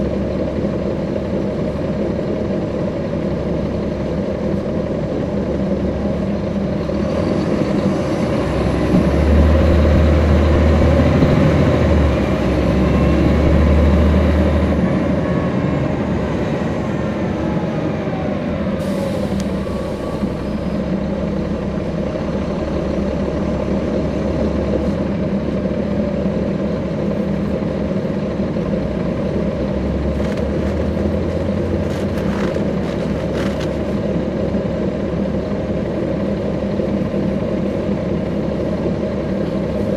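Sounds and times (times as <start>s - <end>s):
bus diesel engine droning: 0.0s - 39.9s.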